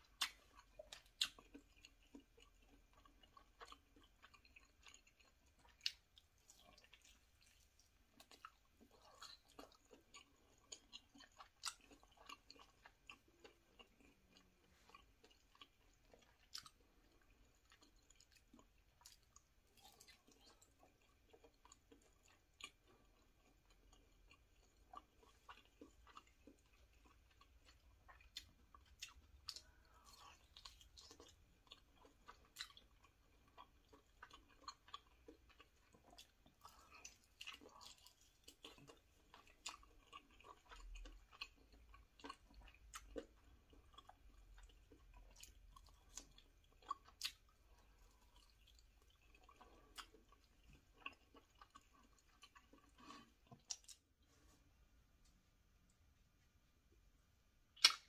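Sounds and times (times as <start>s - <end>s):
wet chewing mouth clicks: 57.8s - 58.0s.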